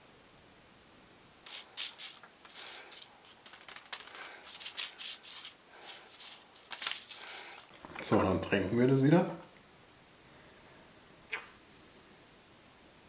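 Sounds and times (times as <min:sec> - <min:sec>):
paper rustling and scraping: 0:01.5 - 0:08.2.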